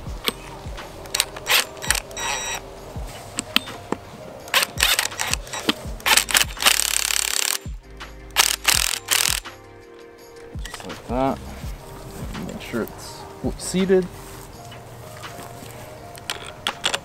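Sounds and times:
background music with beat: 0:00.0 - 0:17.0
impact wrench rattling: 0:01.1 - 0:02.6, 0:04.5 - 0:07.7, 0:08.4 - 0:09.5.

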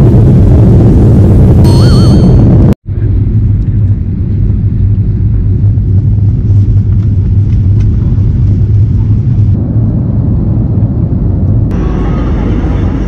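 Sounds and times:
jet cabin engine rumble: 0:00.0 - 0:13.0.

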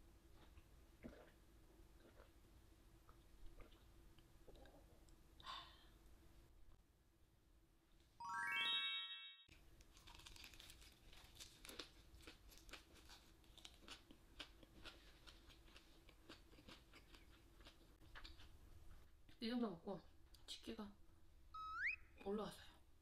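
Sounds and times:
bright rising chime effect: 0:08.2 - 0:09.5, 0:21.6 - 0:22.0
close-miked chewing crunches: 0:09.8 - 0:18.6.

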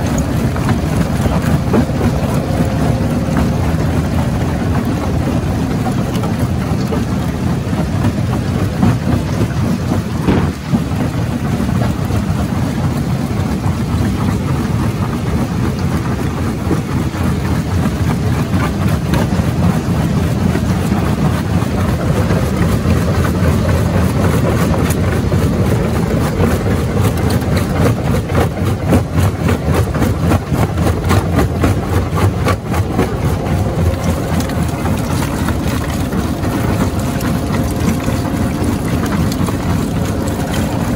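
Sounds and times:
heavy machine drone: 0:00.0 - 0:22.8, 0:29.9 - 0:40.9
rocks cracking and clattering: 0:10.2 - 0:10.9.

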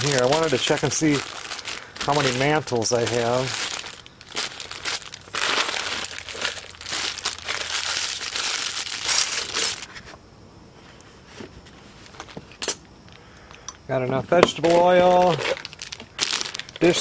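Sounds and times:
plastic packets crinkling: 0:00.0 - 0:09.9, 0:14.5 - 0:17.0.

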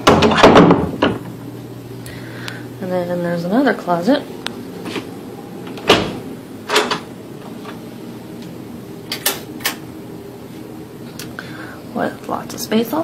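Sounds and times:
closet door opening: 0:04.8 - 0:07.8.

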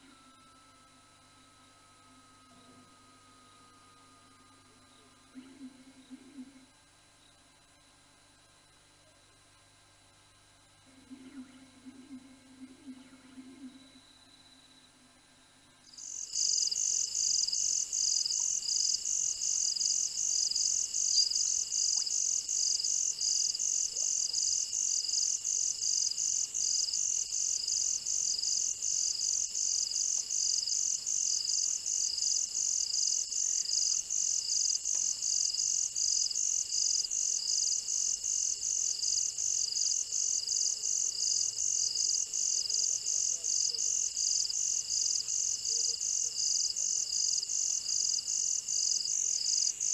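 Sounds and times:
steady high hum: 0:00.0 - 0:49.9
insects pulsing: 0:15.8 - 0:49.9.

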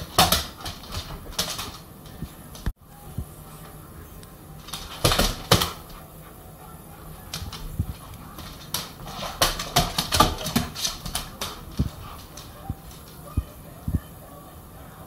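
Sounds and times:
dog claws clicking on floor: 0:00.0 - 0:02.7, 0:04.6 - 0:06.0, 0:07.3 - 0:13.2.

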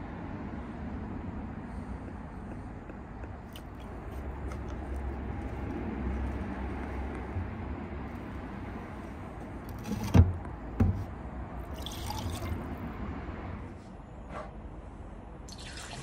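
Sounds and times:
liquid pouring and splashing: 0:11.7 - 0:12.7, 0:15.5 - 0:16.0.

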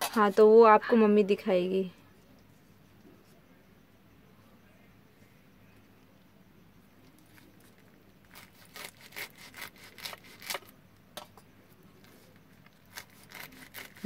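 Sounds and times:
knife slicing leaf roll: 0:08.3 - 0:10.7, 0:12.8 - 0:14.0.

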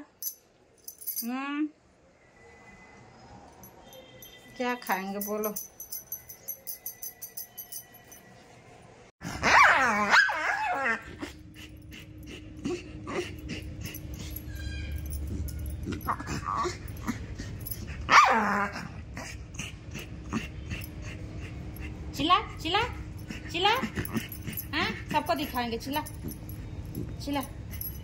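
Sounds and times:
dog barking and crying: 0:09.3 - 0:18.9.

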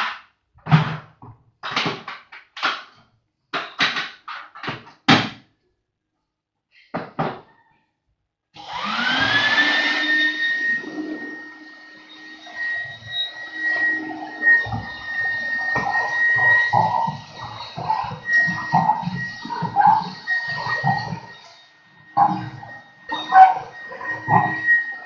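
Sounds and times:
knocks and clatters: 0:00.0 - 0:05.4
vacuum cleaner motor whining: 0:08.6 - 0:25.0.

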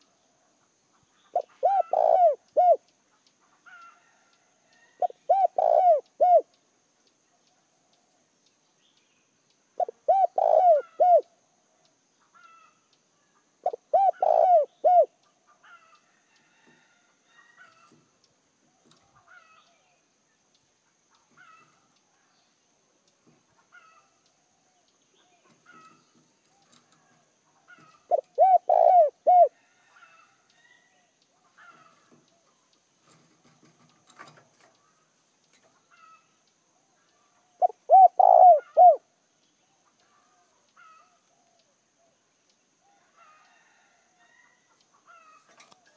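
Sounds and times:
dove cooing: 0:01.3 - 0:02.8, 0:05.0 - 0:06.5, 0:09.8 - 0:11.3, 0:13.6 - 0:15.2, 0:25.3 - 0:30.2, 0:37.4 - 0:39.1
faint bird chirps: 0:17.2 - 0:45.9.

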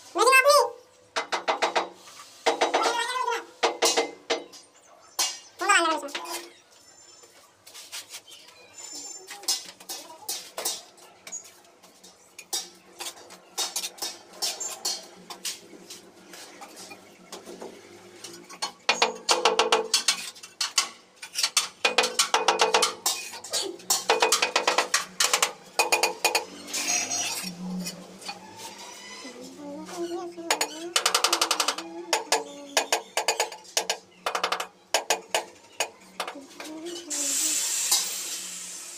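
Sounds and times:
trowel and hammer tapping tiles: 0:01.2 - 0:04.5, 0:18.6 - 0:26.5, 0:30.4 - 0:36.7.

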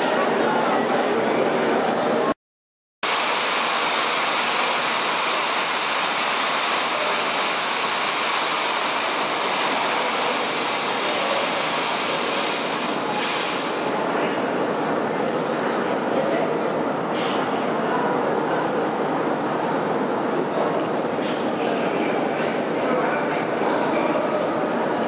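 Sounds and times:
smoke machine hissing: 0:03.0 - 0:15.9.

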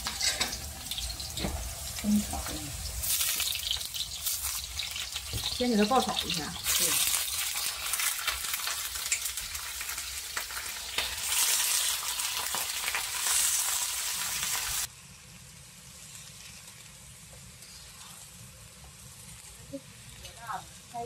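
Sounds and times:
chicken sizzling in a wok: 0:00.0 - 0:21.0.

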